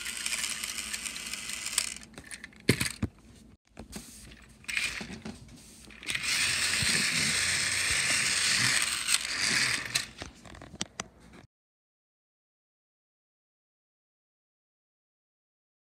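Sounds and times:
toy train motor whirring: 0:00.0 - 0:03.0, 0:04.6 - 0:05.1, 0:05.9 - 0:10.3.

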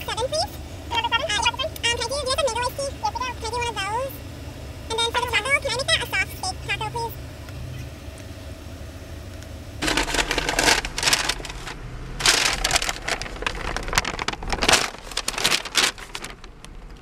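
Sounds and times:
steady low hum: 0:00.0 - 0:17.0
paper bag rustling: 0:09.8 - 0:17.0.

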